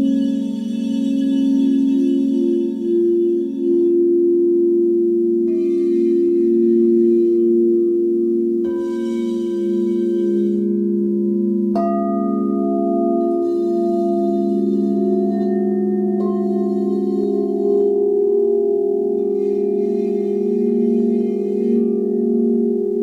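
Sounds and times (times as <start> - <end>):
singing bowls ringing: 0.0 - 23.0
singing bowl strike: 8.6 - 23.0.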